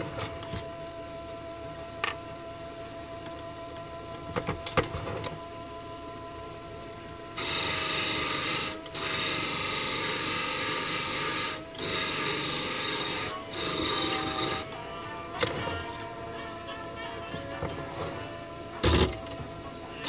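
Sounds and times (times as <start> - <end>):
lathe motor hum: 0.0 - 20.0
loud rasping scrape: 7.4 - 14.7.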